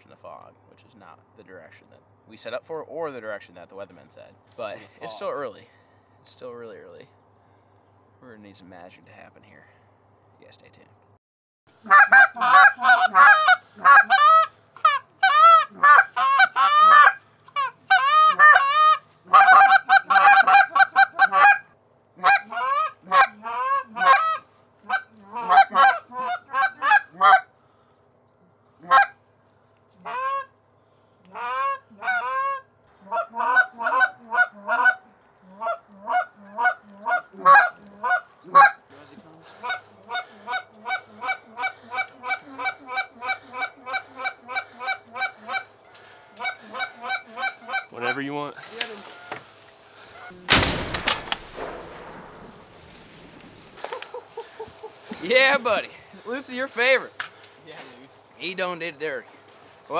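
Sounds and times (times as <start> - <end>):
goose honking and clucking: 11.8 - 27.6, 28.8 - 29.2, 29.9 - 30.6, 31.3 - 50.4, 53.8 - 57.1.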